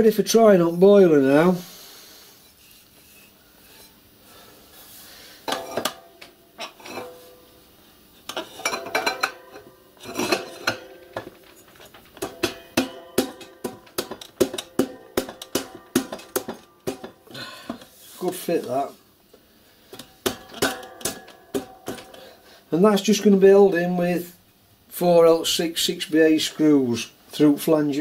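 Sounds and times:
metal on metal clinks and knocks: 0:08.3 - 0:17.9, 0:19.9 - 0:22.2.

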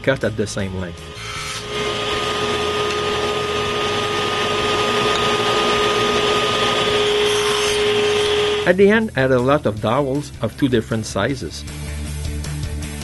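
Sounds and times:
power tool motor whine: 0:01.1 - 0:08.7.

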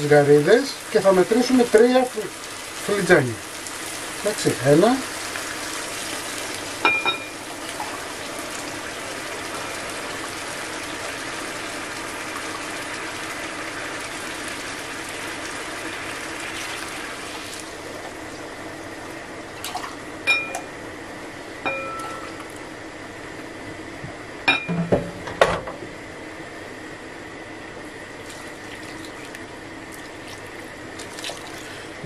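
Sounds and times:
liquid bubbling hiss in pan: 0:00.0 - 0:20.1, 0:28.1 - 0:32.0
stock pouring: 0:28.2 - 0:31.9.

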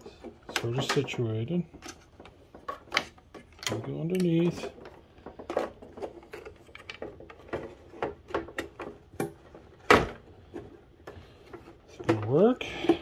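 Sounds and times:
clicks and knocks handling circuit boards: 0:00.0 - 0:13.0.

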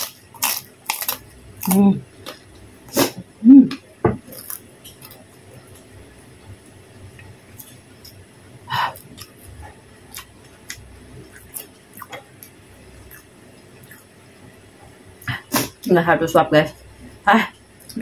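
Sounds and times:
person chewing food: 0:00.0 - 0:03.2, 0:04.2 - 0:05.9, 0:08.9 - 0:14.1.

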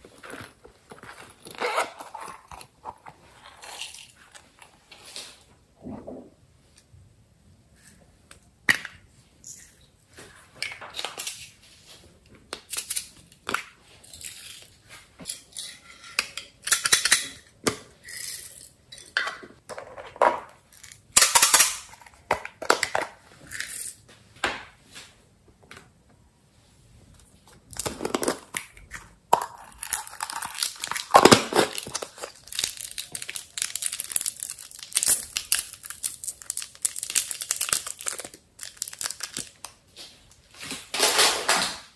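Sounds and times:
plastic crinkling and crackling: 0:29.7 - 0:41.6.

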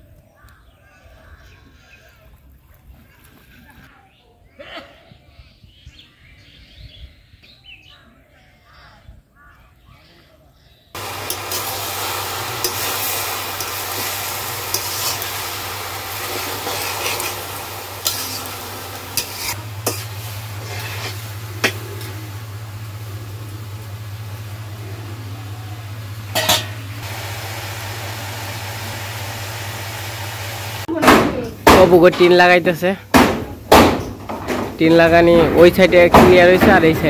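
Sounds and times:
vegetables sizzling in a wok: 0:11.0 - 0:30.9
metal spatula scraping a wok: 0:12.6 - 0:22.1.

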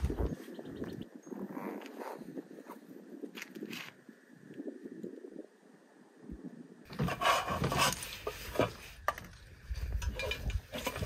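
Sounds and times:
cookware and utensils clattering: 0:10.0 - 0:11.0.

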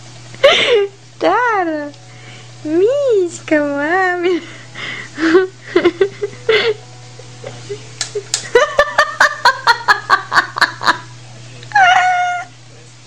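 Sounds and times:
sharp smacking clicks: 0:08.0 - 0:08.5.

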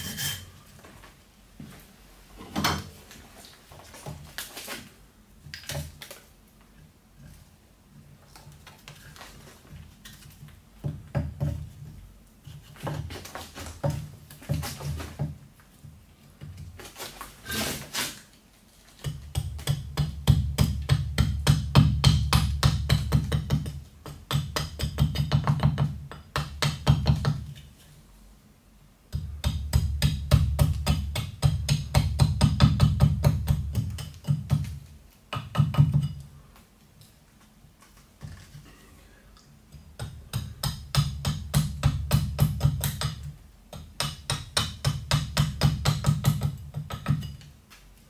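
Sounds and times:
axe chopping wood: 0:19.0 - 0:27.4, 0:40.0 - 0:47.3.

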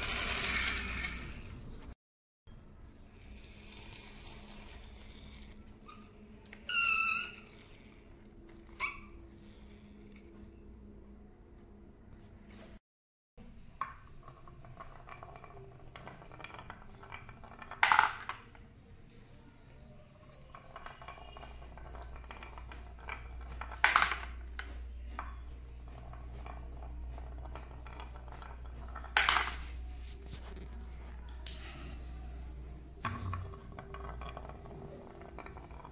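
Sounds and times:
marble rattling in wooden groove: 0:13.8 - 0:18.6, 0:20.4 - 0:31.1, 0:32.5 - 0:35.9
loud marble clacks: 0:20.5 - 0:29.8.

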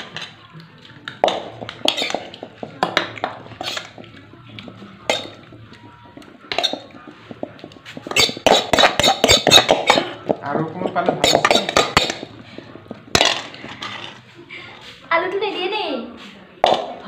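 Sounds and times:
dishes knocking and clinking: 0:01.1 - 0:14.2.

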